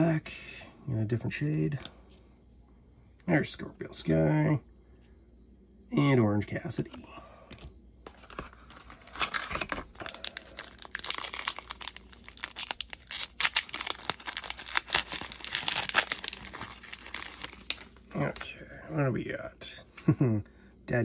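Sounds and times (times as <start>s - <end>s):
foil wrapper crinkling and tearing: 8.1s - 18.2s.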